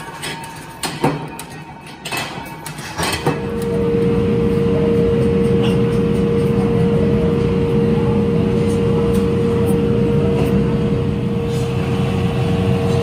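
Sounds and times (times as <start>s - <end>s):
steady machine hum: 3.2s - 13.0s.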